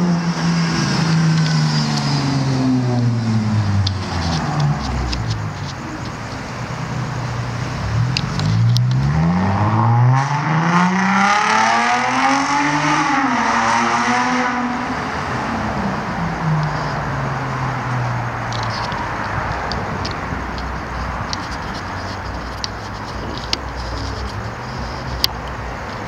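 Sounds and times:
vehicle engine accelerating: 0.0s - 20.6s.

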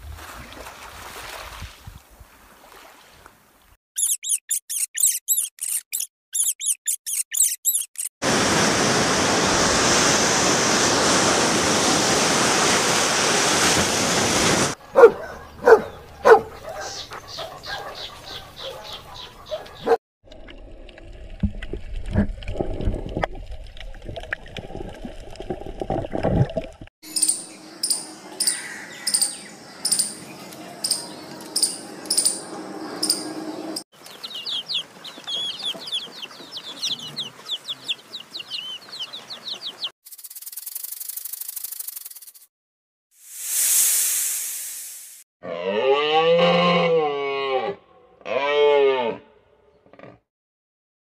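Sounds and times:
clicks and squeaks: 4.0s - 8.1s
rapid high chirping: 4.0s - 8.1s, 27.1s - 30.2s, 34.1s - 42.4s
squirrel chirping: 4.0s - 8.1s, 27.1s - 30.2s, 34.0s - 41.6s.

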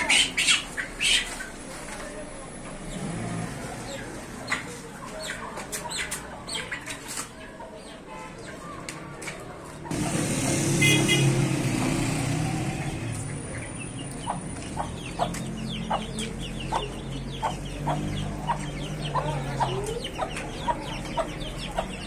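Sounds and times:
hen clucking: 0.0s - 1.6s, 3.9s - 8.6s, 13.2s - 22.0s
chicks peeping: 0.0s - 1.8s, 2.7s - 10.7s, 11.8s - 22.0s.

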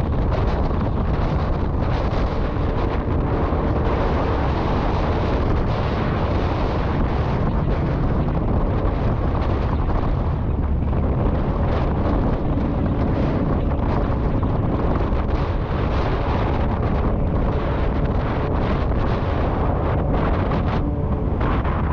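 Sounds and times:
wind rushing over microphone: 0.0s - 21.9s.

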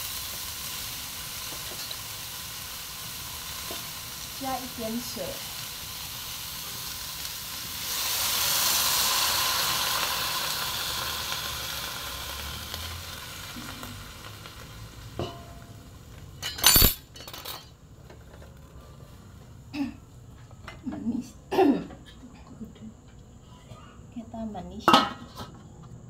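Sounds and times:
food sizzling in a wok: 0.0s - 17.3s
sharp metallic clank: 15.2s - 15.7s, 16.4s - 17.7s.

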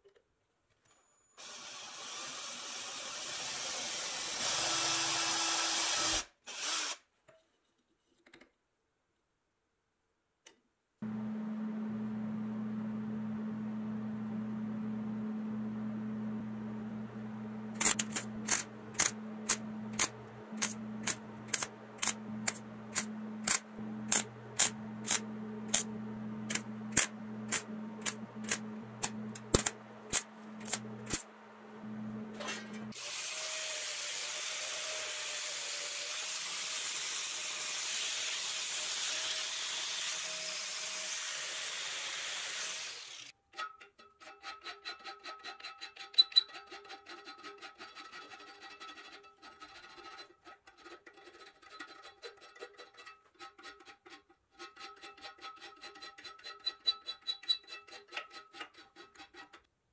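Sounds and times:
low machine hum: 11.0s - 32.9s.

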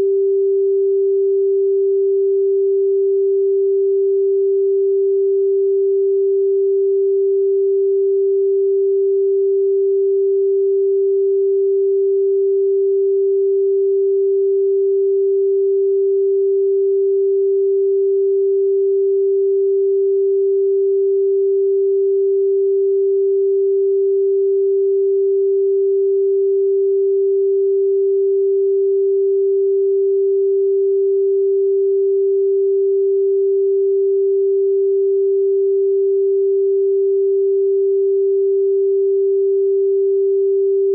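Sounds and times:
pure sine tone: 0.0s - 40.9s.

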